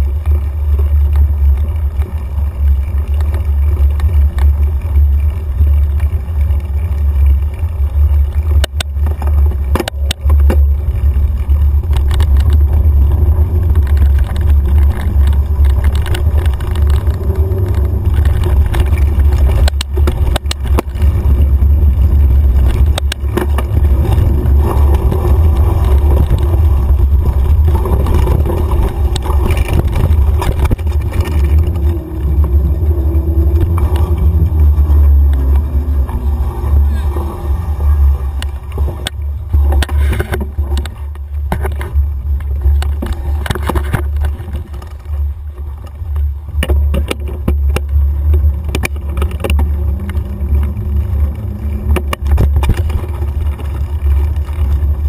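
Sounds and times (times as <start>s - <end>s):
wind buffeting camera: 0.0s - 55.0s.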